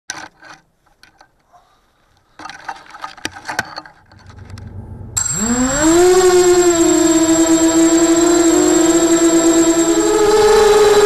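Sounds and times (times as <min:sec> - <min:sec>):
drone motors whining: 0:04.1 - 0:11.0.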